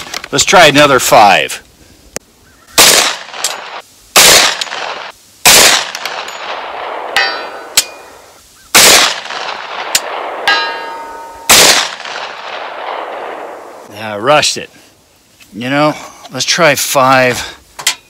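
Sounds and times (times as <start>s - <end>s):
rifle shots with echo: 2.8s - 7.8s, 8.7s - 13.9s
bullet pinging steel target: 5.5s - 8.2s, 8.8s - 12.4s.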